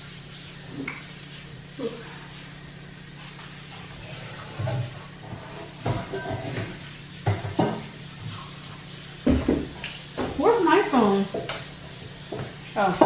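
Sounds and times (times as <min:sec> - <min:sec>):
tap water running: 0:00.0 - 0:13.0
metal pots and bowls clanking: 0:04.1 - 0:07.9.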